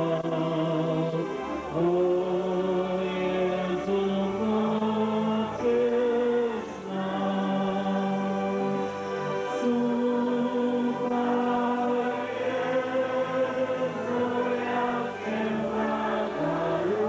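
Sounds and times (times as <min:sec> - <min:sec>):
group singing a slow hymn: 0:00.0 - 0:17.0.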